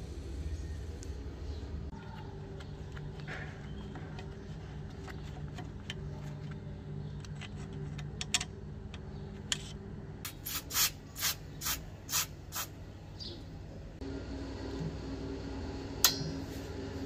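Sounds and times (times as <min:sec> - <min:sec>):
screw scraping and ticking: 0:02.5 - 0:09.9
short loud hissing bursts: 0:10.3 - 0:12.8.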